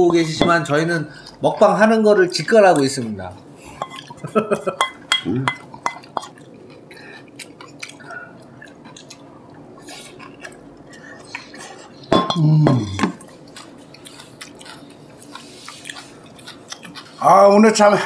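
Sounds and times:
dishes and cutlery clinking: 0.1 - 0.7, 3.8 - 6.4, 12.1 - 13.2.

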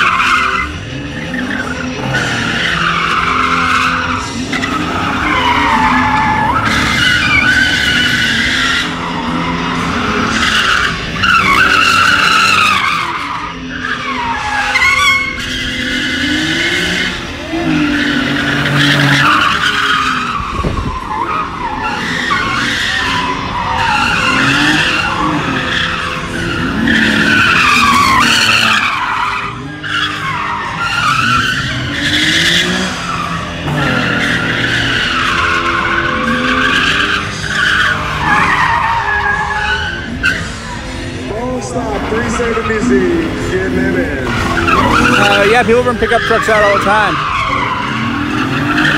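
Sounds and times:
car engine revving: 0.0 - 48.9
tyres squealing: 0.0 - 48.9.

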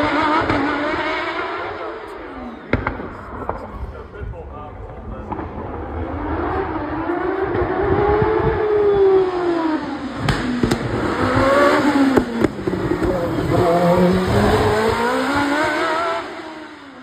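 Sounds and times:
race car engine running hard: 0.0 - 17.0.

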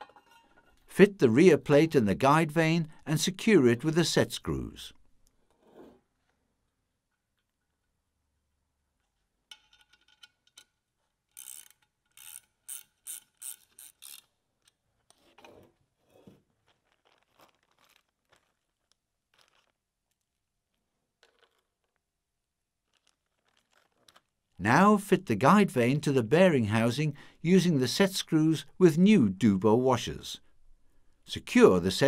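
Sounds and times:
hand tools clicking on screws: 9.5 - 14.8.

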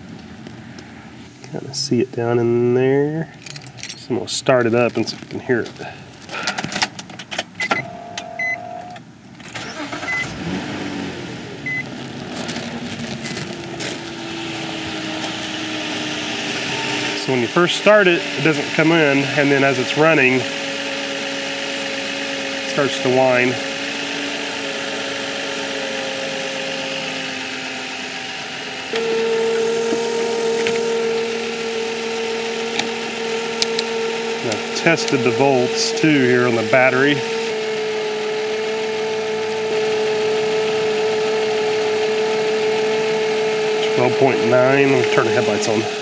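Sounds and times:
car engine starting and idling: 0.0 - 46.0
steady whine: 0.0 - 46.0
ignition clicks: 6.4 - 11.0, 28.8 - 45.8
short electronic beeps: 7.6 - 8.7, 10.0 - 10.3, 11.6 - 11.9.

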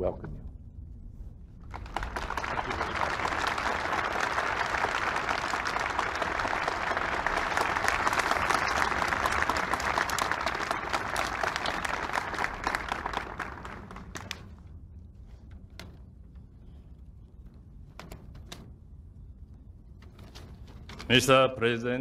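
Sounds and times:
crowd applauding: 1.6 - 14.6.

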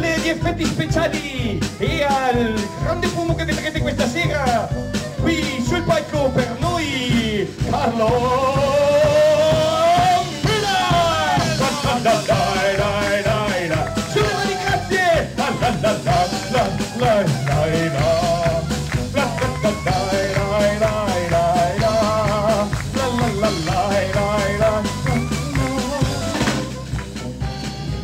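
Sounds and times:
drum kit beat: 0.0 - 28.0
live band playing upbeat tune: 0.0 - 28.0
wavering horn melody: 9.5 - 22.3, 22.9 - 28.0.

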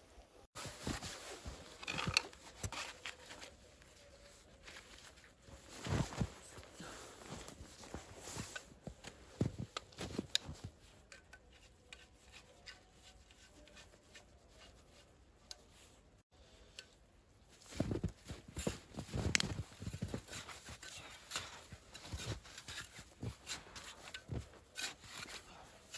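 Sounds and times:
hand tool crunching snow: 17.7 - 25.9.

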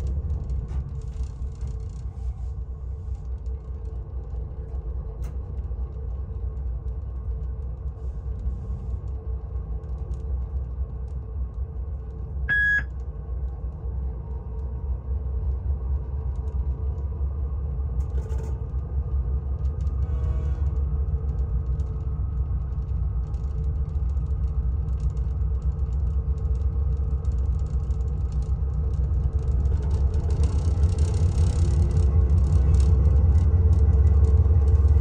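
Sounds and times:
short electronic beep: 12.5 - 12.9.

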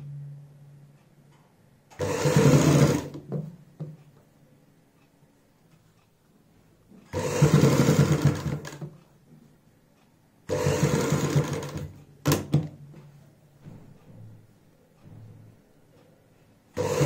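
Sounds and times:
sewing machine stitching: 1.9 - 3.5, 7.0 - 9.0, 10.5 - 12.5, 16.8 - 17.0.

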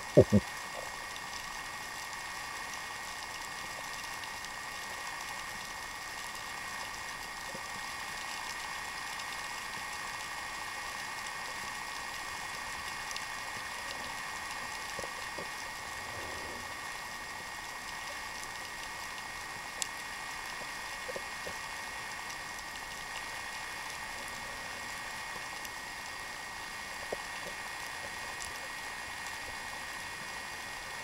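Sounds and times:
faint ticks: 0.0 - 31.0
underwater sea hiss: 13.9 - 17.6.

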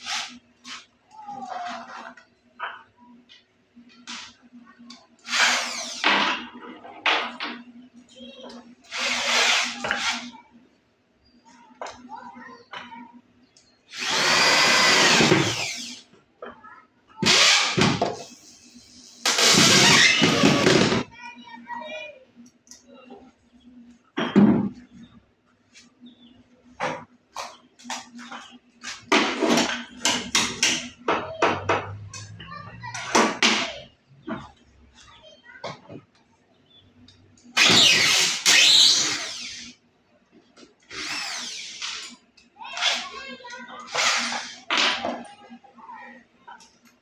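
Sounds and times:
electric drill motor whine: 5.3 - 6.0, 13.9 - 16.0, 37.6 - 39.7, 40.9 - 41.9.

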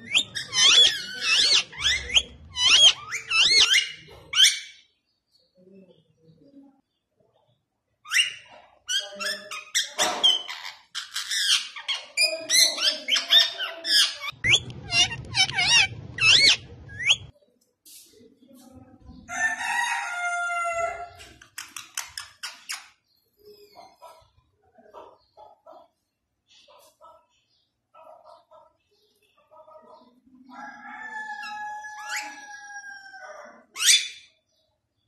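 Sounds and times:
parakeet squawking and screeching: 0.0 - 4.9, 8.1 - 17.3, 31.0 - 34.4.

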